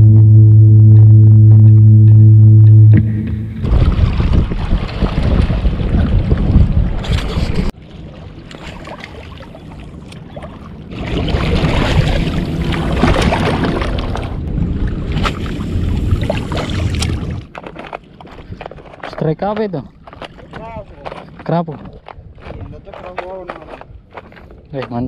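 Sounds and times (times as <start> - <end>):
wind buffeting microphone: 3.4 - 7.8, 19.9 - 25.0
water lapping against rocks: 3.6 - 25.0.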